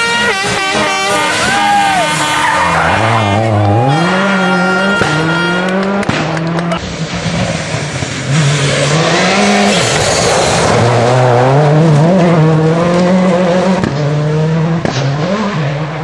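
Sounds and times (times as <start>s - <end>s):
rally car engine revving: 0.0s - 16.0s
sharp cracks: 5.0s - 8.3s
tyres sliding on gravel: 6.8s - 11.4s.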